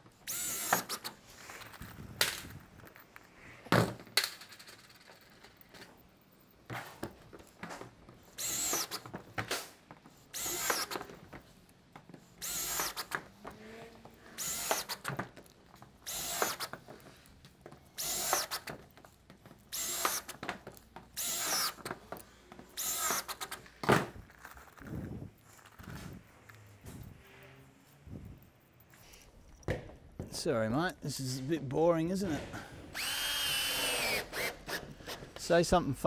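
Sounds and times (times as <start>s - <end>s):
cordless drill driving screws: 0.2s - 1.2s, 8.4s - 9.1s, 10.3s - 11.2s, 12.4s - 15.2s, 16.0s - 17.0s, 17.9s - 18.8s, 19.6s - 20.5s, 21.1s - 23.8s, 32.9s - 35.4s.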